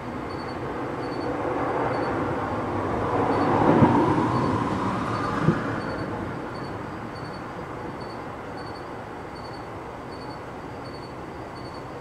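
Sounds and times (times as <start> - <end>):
vehicle passing by: 0.8 - 7.1.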